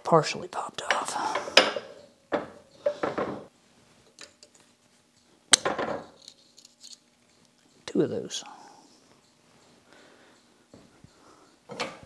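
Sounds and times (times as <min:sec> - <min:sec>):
metal clinks and scraping: 0:05.9 - 0:07.9.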